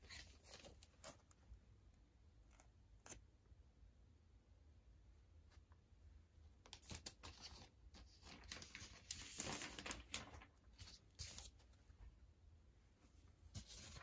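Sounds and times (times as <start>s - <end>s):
plastic sleeve crinkling: 6.8s - 11.6s.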